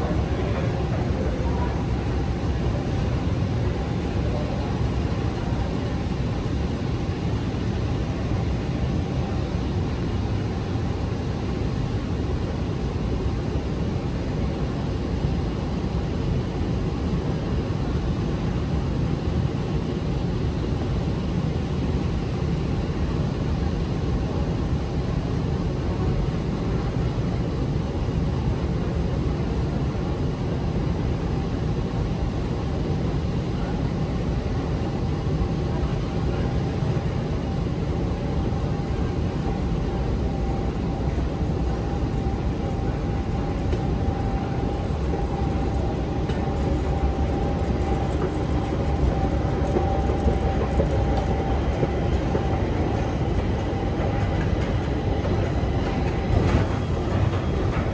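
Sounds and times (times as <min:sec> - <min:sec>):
moving walkway rumbling: 0:38.5 - 0:57.9.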